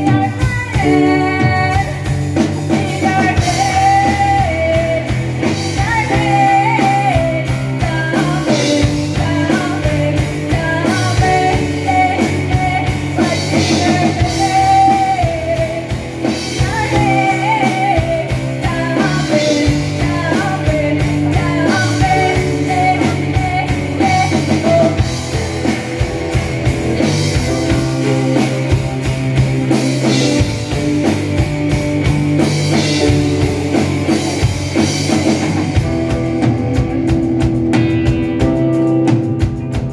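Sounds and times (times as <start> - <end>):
person singing: 0.0 - 2.0, 2.6 - 15.9, 16.5 - 25.1
bass guitar: 0.0 - 39.9
drum kit: 0.0 - 39.9
electric guitars: 0.0 - 39.9
piano: 0.0 - 39.9.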